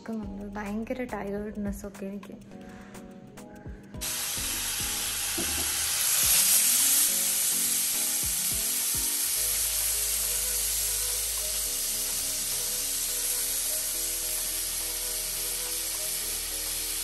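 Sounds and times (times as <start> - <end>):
sausages sizzling in oil: 4.0 - 17.0.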